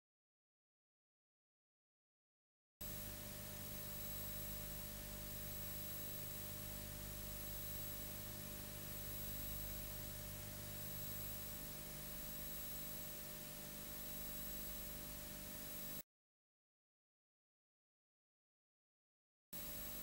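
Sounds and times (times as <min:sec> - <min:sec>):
low hum: 0:02.8 - 0:16.0.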